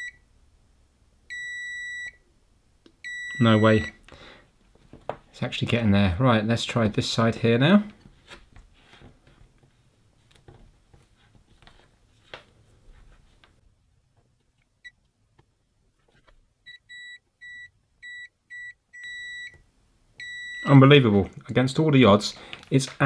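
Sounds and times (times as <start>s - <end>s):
multimeter continuity beeps: 0.0s - 0.2s, 1.3s - 2.2s, 3.0s - 4.0s, 16.7s - 19.6s, 20.2s - 20.8s.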